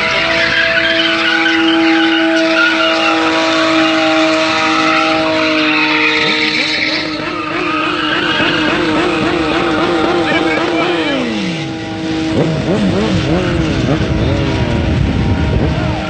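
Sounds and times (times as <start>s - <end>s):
tyres screeching: 0.0s - 11.7s
car engine at high revs: 0.0s - 16.0s.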